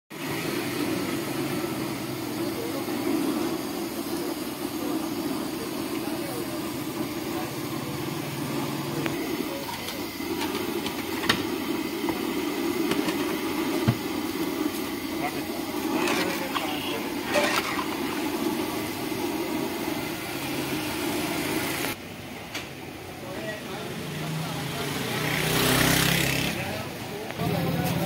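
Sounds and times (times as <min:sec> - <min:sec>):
food sizzling in hot oil: 0:00.2 - 0:21.9.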